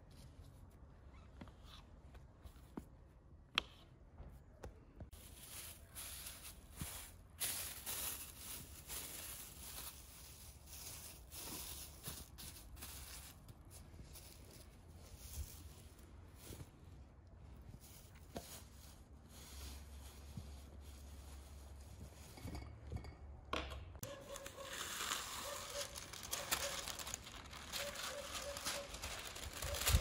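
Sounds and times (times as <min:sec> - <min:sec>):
plastic film rustling and crinkling: 0:05.1 - 0:16.8, 0:24.1 - 0:30.0.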